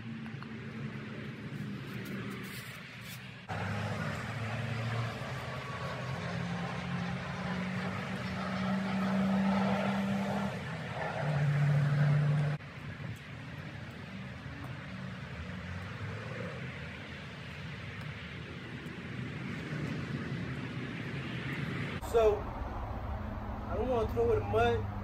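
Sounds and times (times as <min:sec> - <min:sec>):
engine running: 0:00.0 - 0:17.6.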